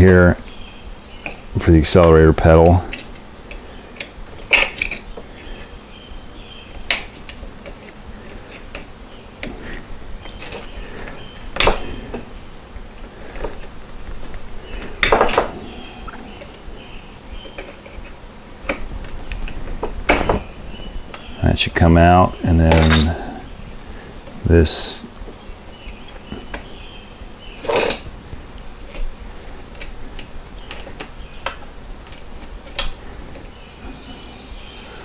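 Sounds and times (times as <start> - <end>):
hand tools clinking on metal: 22.6 - 23.3.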